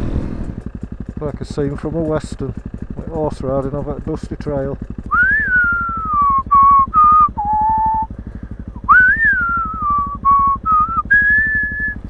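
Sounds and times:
motorcycle engine thumping: 0:00.0 - 0:12.0
person whistling slow tune: 0:05.1 - 0:08.1, 0:08.7 - 0:12.0.

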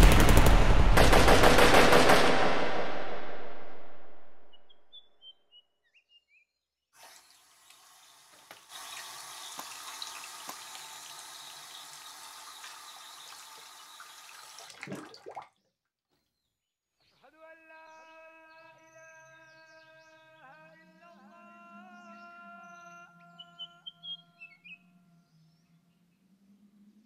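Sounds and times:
tap water splashing over head: 0:07.7 - 0:15.6.

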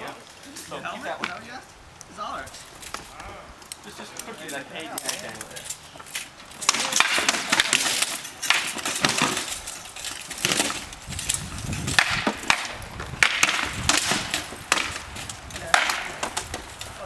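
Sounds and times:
rattan swords striking shields: 0:06.6 - 0:17.0.

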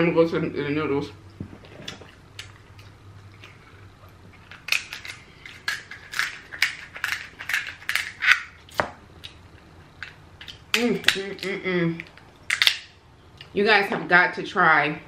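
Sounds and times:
shears crunching through crab shell: 0:04.4 - 0:09.4.

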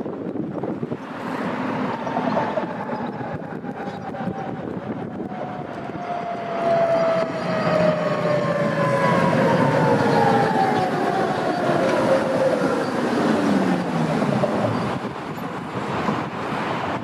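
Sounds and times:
tram rumbling on track: 0:00.0 - 0:17.0
tram whine falling in pitch: 0:01.9 - 0:15.3.

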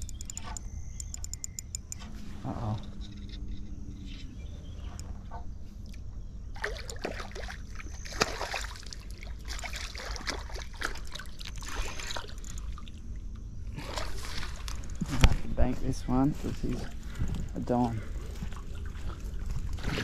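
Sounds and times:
sharp click: 0:00.0 - 0:02.1
fish splashing and thrashing: 0:05.8 - 0:15.4.

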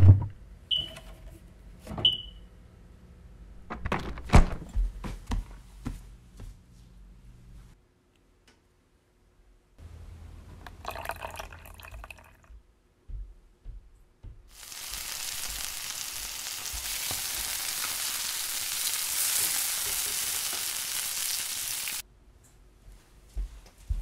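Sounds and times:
food sizzling in a frying pan: 0:14.5 - 0:22.0.

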